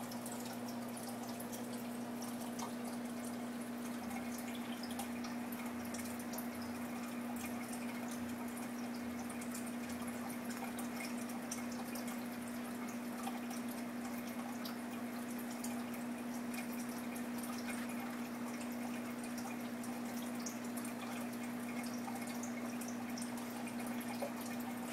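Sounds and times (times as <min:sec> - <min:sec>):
filter motor hum: 0:00.0 - 0:24.9
water dripping and splashing: 0:00.0 - 0:24.9
water trickling: 0:00.0 - 0:24.9.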